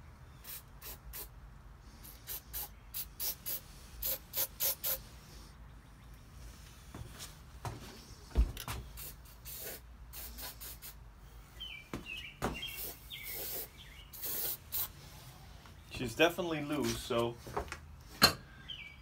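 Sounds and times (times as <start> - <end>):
short hisses: 0.4 - 5.6, 8.9 - 11.0, 12.7 - 15.4.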